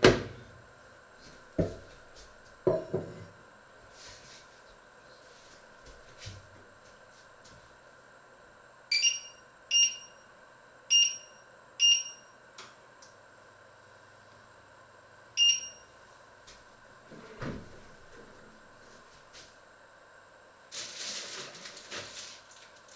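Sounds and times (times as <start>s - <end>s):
short high beeps of hob controls: 8.9s - 10.2s, 10.9s - 12.4s, 15.4s - 15.9s.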